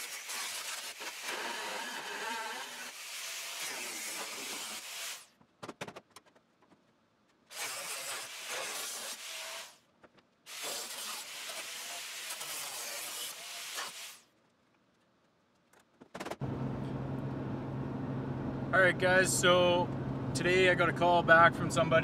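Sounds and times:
cut-off wheel screaming through metal: 0.0s - 5.2s.

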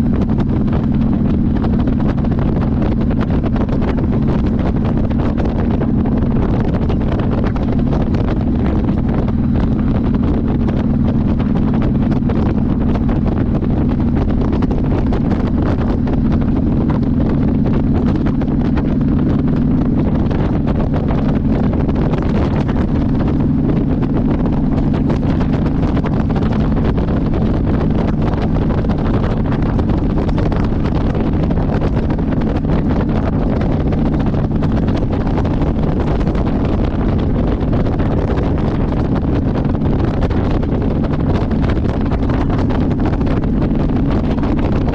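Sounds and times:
motorcycle engine cruising: 0.0s - 44.9s
wind rushing over microphone: 0.0s - 44.9s.

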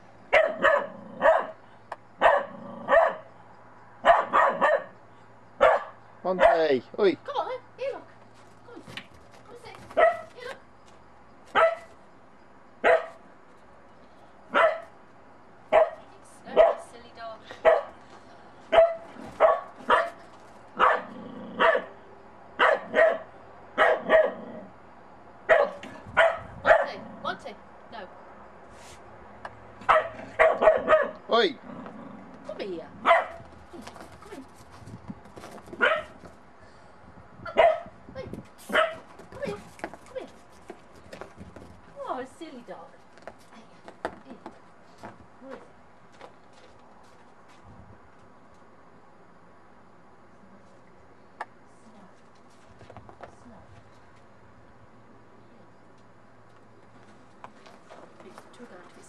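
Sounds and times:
puppy barking: 0.3s - 1.6s, 2.2s - 3.3s, 4.0s - 5.0s, 5.6s - 6.7s, 10.0s - 10.3s, 11.6s - 11.9s, 12.8s - 13.2s, 14.5s - 14.9s, 15.7s - 16.8s, 17.6s - 18.0s, 18.7s - 20.2s, 20.8s - 21.9s, 22.6s - 24.4s, 25.5s - 27.0s, 29.8s - 31.2s, 33.0s - 33.4s, 35.8s - 36.2s, 37.5s - 37.9s, 38.7s - 39.1s.

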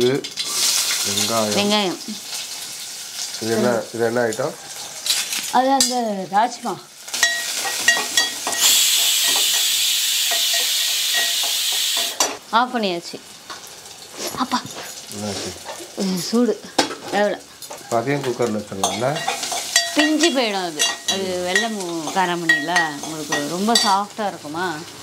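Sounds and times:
onions sizzling in hot oil: 0.0s - 25.0s
metal ladle clinking on pot: 7.2s - 9.6s, 10.3s - 12.4s, 18.8s - 24.0s.

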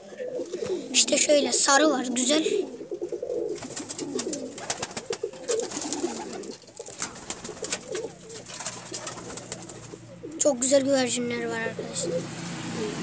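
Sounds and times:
pigeons cooing: 0.0s - 13.0s
wingbeats: 3.3s - 10.8s.

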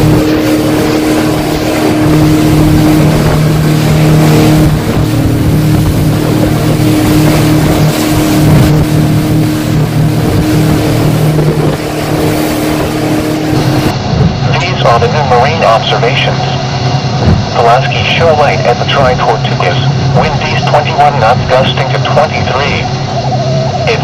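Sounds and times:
water spray splashing: 0.0s - 13.9s
outboard motor running: 0.0s - 24.0s
rushing wind and water: 0.0s - 24.0s.

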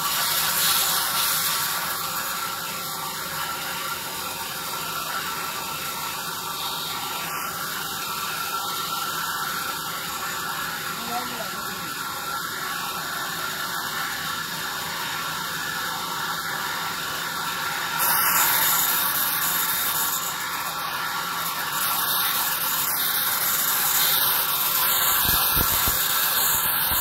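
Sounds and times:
band saw cutting log: 17.6s - 27.0s.

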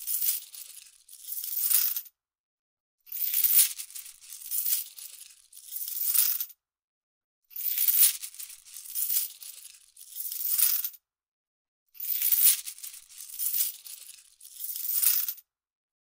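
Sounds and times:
money rattling: 0.0s - 2.0s, 3.2s - 6.4s, 7.7s - 10.9s, 12.1s - 15.4s.

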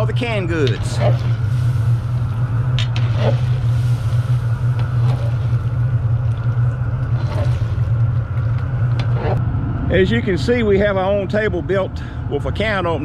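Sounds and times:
gas burner roaring: 0.0s - 13.0s.

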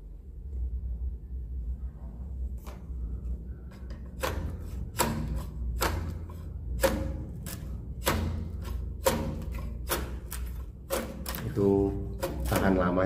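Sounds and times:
low steady hum: 0.0s - 13.0s
pole knocking and scraping wood: 3.7s - 13.0s.

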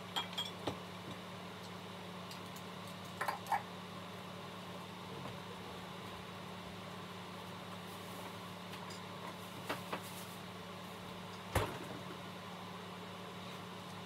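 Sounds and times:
kitchen hum: 0.0s - 14.0s.

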